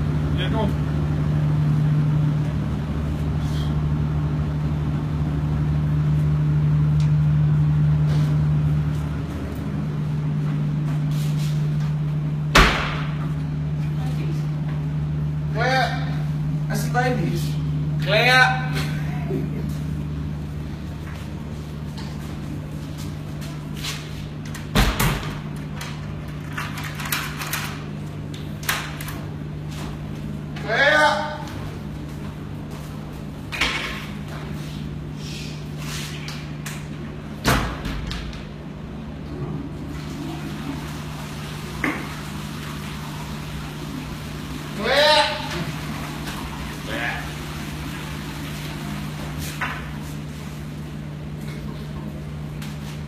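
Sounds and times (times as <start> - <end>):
low hum: 0.0 - 24.6
steady low hum: 0.0 - 53.0.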